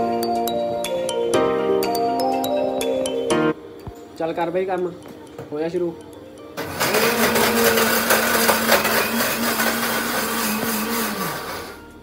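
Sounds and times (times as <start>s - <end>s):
mixer grinder running: 6.6s - 12.0s.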